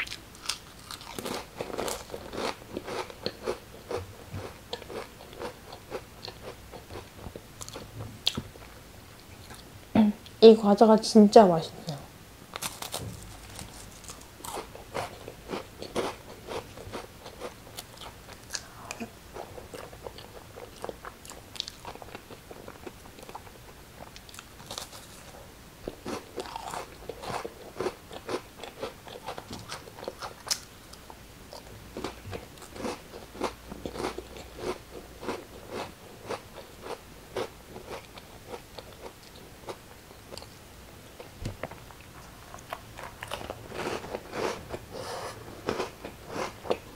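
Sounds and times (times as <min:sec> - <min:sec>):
crackers crunching: 0:00.0 - 0:03.6, 0:12.5 - 0:18.7, 0:24.0 - 0:25.4.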